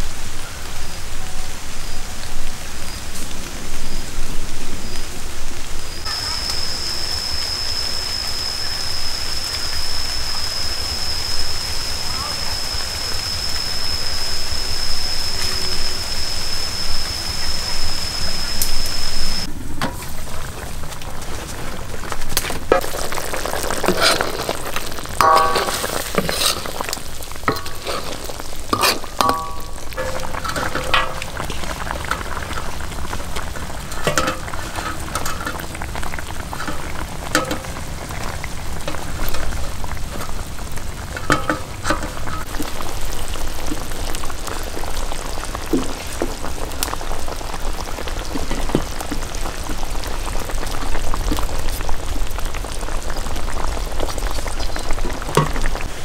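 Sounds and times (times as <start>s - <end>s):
food sizzling in a pan: 0.0s - 19.5s, 22.0s - 56.0s
utensil scraping a pan: 23.8s - 32.7s.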